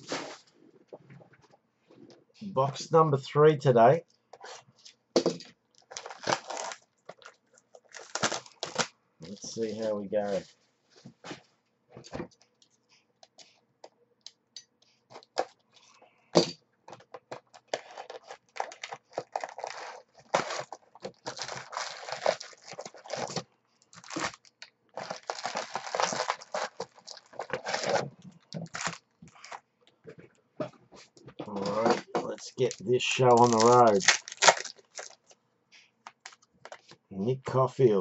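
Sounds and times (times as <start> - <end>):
plastic wrapping crinkling: 5.7 - 10.5, 17.1 - 29.6, 31.5 - 36.9.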